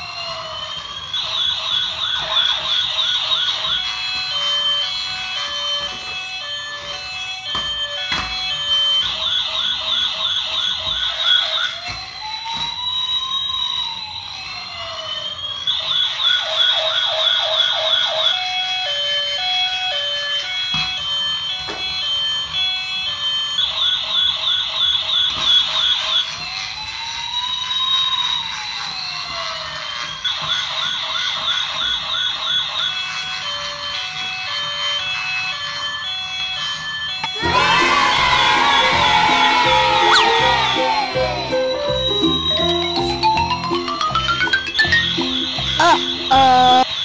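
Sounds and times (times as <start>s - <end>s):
toy siren warbling and wailing: 0.0s - 47.0s
short beeping tune: 39.6s - 46.8s.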